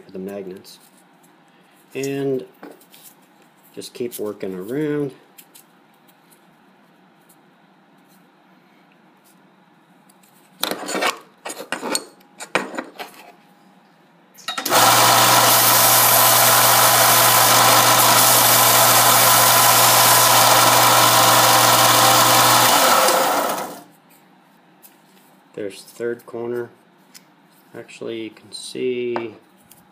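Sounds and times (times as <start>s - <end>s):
belt sander running: 14.6s - 23.9s.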